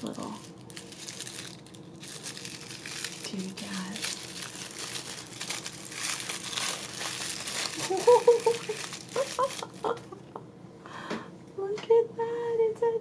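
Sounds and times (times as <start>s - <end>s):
tissue paper crinkling: 0.0s - 10.1s.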